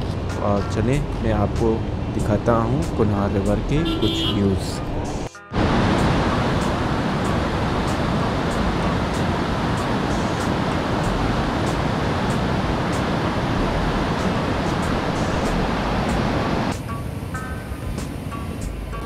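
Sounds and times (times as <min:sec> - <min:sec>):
river rushing over rocks: 0:05.5 - 0:19.0.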